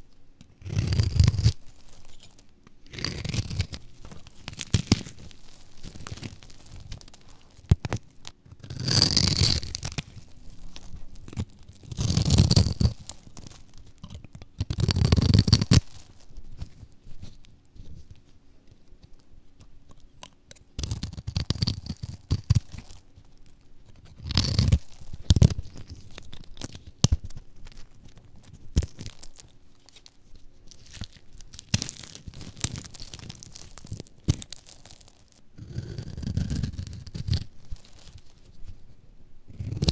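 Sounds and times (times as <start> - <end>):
soap crunching by hand: 0.4 - 17.5, 19.0 - 38.5, 39.5 - 39.9
knife slicing dry soap: 2.9 - 10.0.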